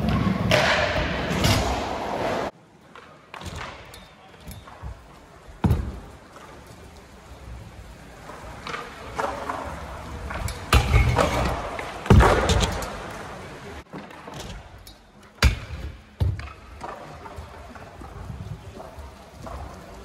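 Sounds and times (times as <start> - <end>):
scooter wheels rolling on wood: 0.0 - 20.0.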